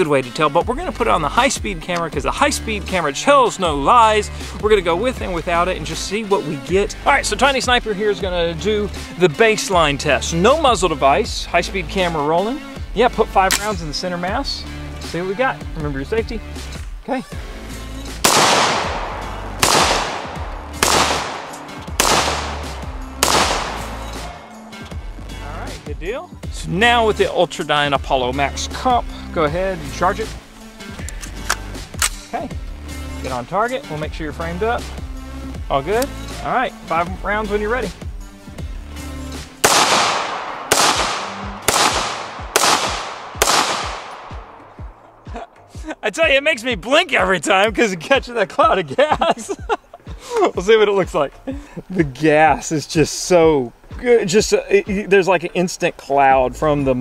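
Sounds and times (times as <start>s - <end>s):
rifle shots echoing: 18.2s - 24.9s, 39.6s - 45.2s.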